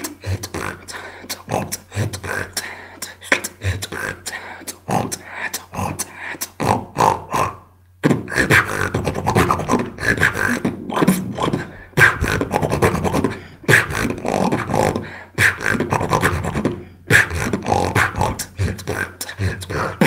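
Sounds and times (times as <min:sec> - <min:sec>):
person beatboxing: 0:00.0 - 0:20.0.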